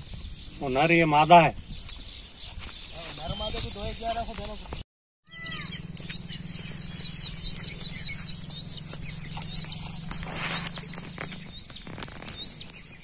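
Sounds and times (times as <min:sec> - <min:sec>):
small birds chirping: 0:00.0 - 0:13.0
steady low hum: 0:05.7 - 0:11.8.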